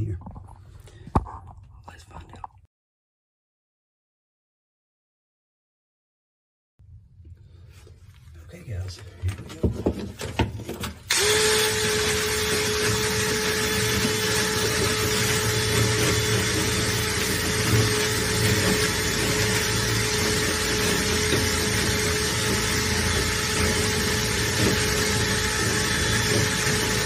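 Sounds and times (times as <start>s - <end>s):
motorised cleaning tool whine: 11.1s - 27.0s.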